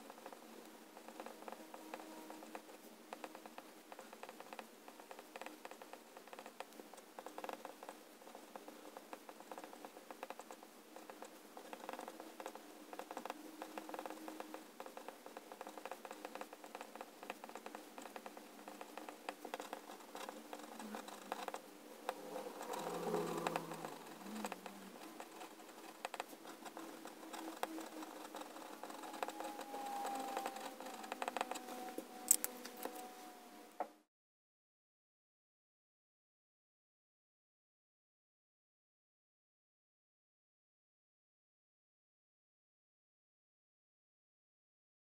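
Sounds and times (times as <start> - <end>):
fountain pen scratching on paper: 0.0 - 33.1.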